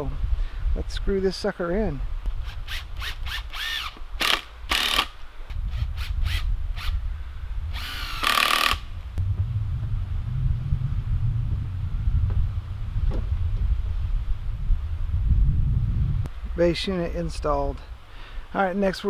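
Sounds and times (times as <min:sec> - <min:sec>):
power drill driving screws: 0:02.4 - 0:05.1, 0:07.8 - 0:08.8.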